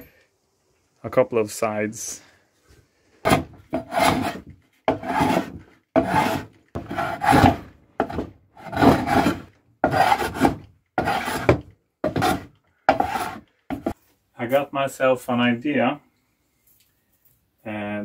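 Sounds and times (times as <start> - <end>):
hand plane rasping on wood: 3.3 - 14.0.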